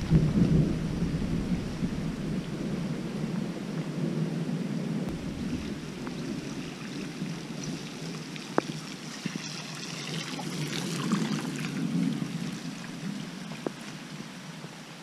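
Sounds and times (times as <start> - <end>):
water splashing: 5.1 - 14.0
tyre rolling through water: 5.1 - 14.2
rushing water: 5.1 - 15.0.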